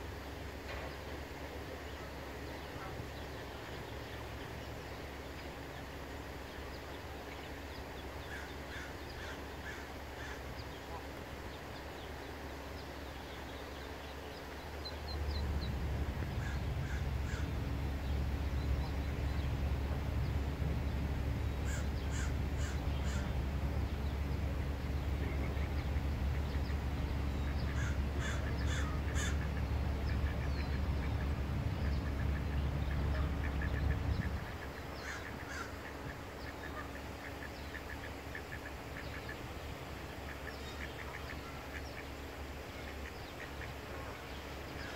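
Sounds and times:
low steady rumble with hum: 0.0 - 44.9
bird cawing: 8.2 - 10.6, 16.2 - 18.0, 21.5 - 23.4, 27.4 - 30.6, 33.2 - 39.4.

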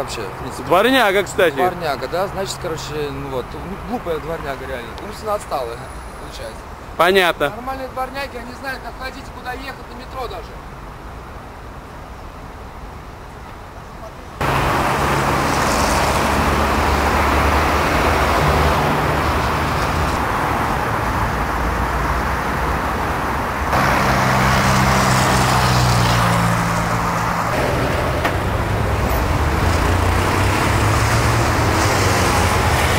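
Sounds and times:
cars driving past: 0.0 - 7.0, 14.4 - 32.9.

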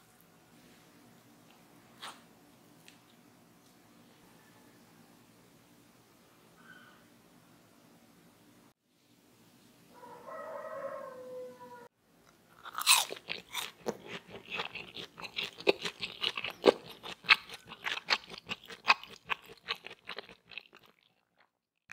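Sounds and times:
crunchy food being chewed: 12.5 - 21.5.

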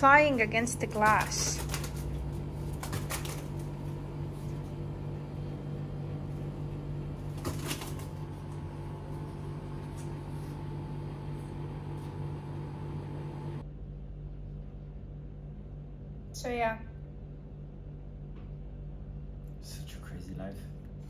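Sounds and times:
steady low hum: 0.0 - 21.0
pigeon wings flapping: 0.8 - 3.7.

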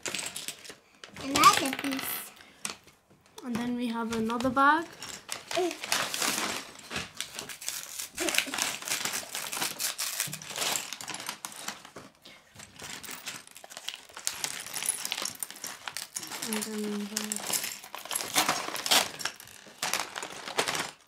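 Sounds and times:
plastic bricks clicking and rattling: 0.0 - 2.8, 12.6 - 21.0
paper bag crinkling and tearing: 5.0 - 11.9, 12.8 - 21.0.

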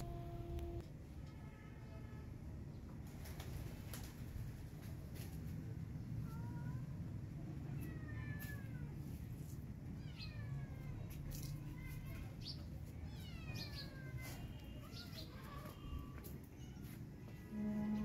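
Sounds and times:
steady low hum: 0.0 - 0.9.

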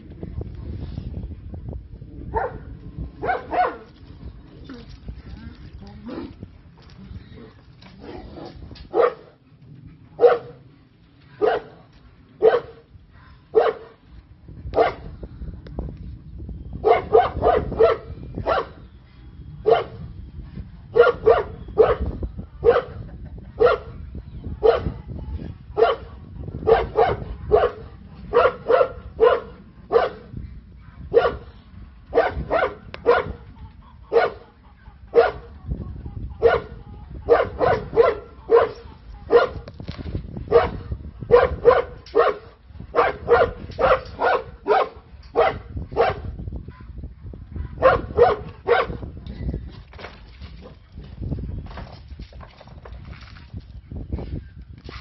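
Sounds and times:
dog barking: 2.3 - 2.6, 3.2 - 3.8, 8.9 - 9.3, 10.2 - 10.6, 11.4 - 11.8, 12.4 - 12.8, 13.5 - 14.0, 14.8 - 15.1, 16.8 - 18.7, 19.6 - 20.0, 21.0 - 23.0, 23.6 - 23.9, 24.6 - 24.9, 25.8 - 30.2, 31.1 - 31.4, 32.1 - 33.4, 34.0 - 34.5, 35.1 - 35.5, 36.4 - 39.6, 40.5 - 46.9, 47.6 - 49.0.

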